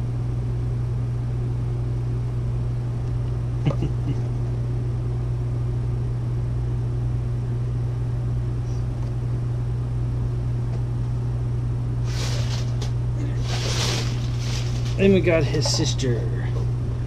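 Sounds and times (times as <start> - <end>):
low mechanical hum: 0.0 - 17.0
packaging rustling: 12.1 - 15.2.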